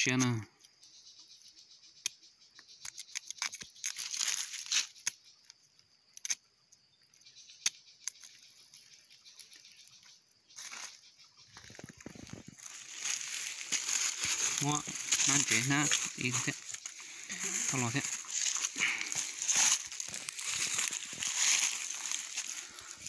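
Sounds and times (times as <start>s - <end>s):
plastic bag crinkling: 11.6s - 23.0s.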